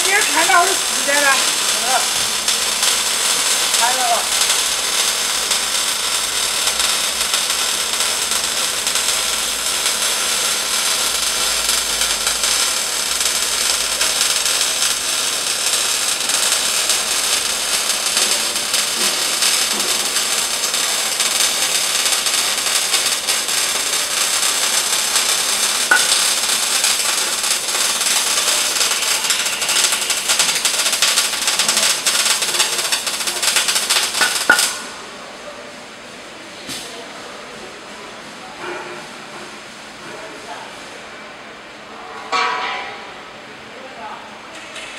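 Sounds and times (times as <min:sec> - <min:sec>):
welding arc crackling hiss: 0:00.0 - 0:35.3.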